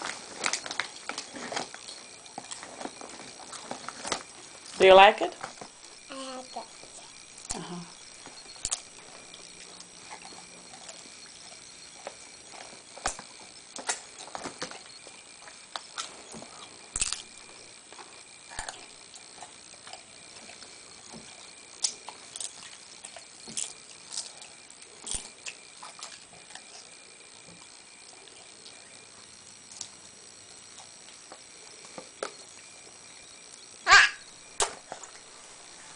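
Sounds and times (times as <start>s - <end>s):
foil chip bag crinkling: 0.0s - 6.0s
child chewing crunchy chips: 0.0s - 33.1s.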